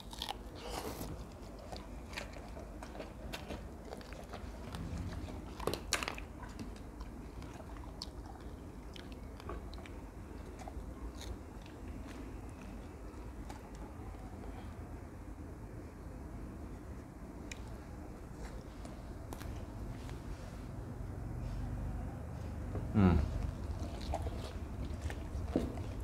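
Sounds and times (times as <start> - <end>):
dogs chewing melon: 0.0 - 14.5, 22.7 - 26.0.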